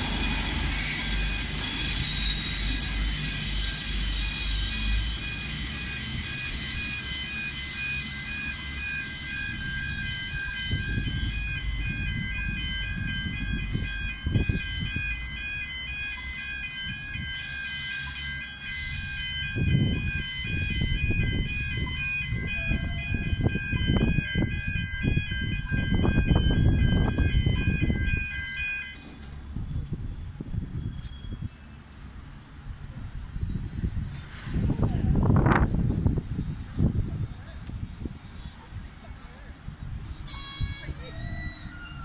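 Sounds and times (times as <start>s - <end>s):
level crossing warning bells: 0.0s - 29.7s, 39.9s - 42.0s.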